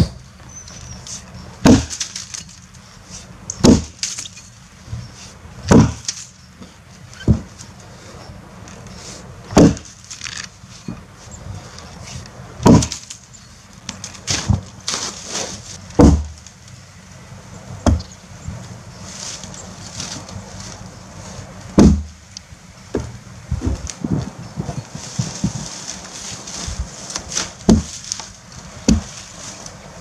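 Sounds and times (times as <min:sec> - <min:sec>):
axe chopping into log: 0:01.6 - 0:02.1, 0:03.6 - 0:04.1, 0:05.7 - 0:06.2, 0:09.5 - 0:09.9, 0:12.6 - 0:13.1, 0:16.0 - 0:16.4, 0:21.8 - 0:22.2, 0:27.3 - 0:28.0, 0:28.9 - 0:29.1.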